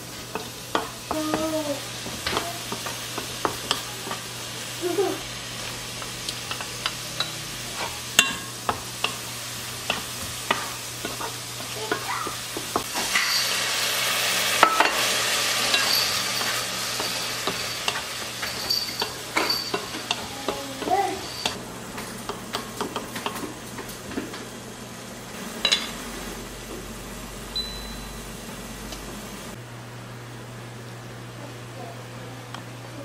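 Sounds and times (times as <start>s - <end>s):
food sizzling: 0.0s - 29.6s
utensil clinking on cookware: 6.3s - 13.6s, 14.6s - 21.6s.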